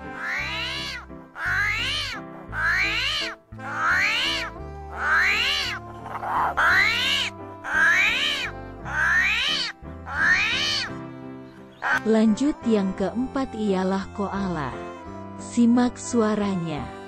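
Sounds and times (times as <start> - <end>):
animal squealing call: 0.0 - 11.0, 11.8 - 12.0
background music with low bass: 0.0 - 17.0.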